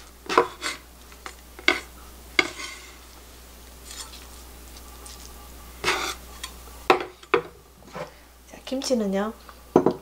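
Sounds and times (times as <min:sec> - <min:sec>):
faint handling sounds: 0:01.0 - 0:06.6.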